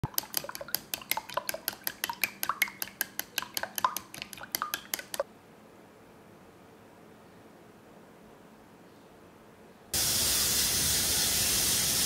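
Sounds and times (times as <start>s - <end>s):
egg beaten in glass bowl: 0.0s - 5.2s.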